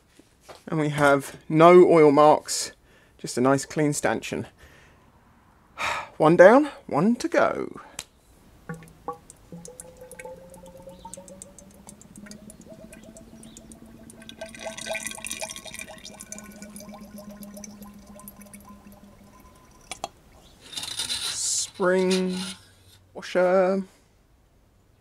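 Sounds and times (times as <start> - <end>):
oil pouring and gurgling: 8.7 - 21.2.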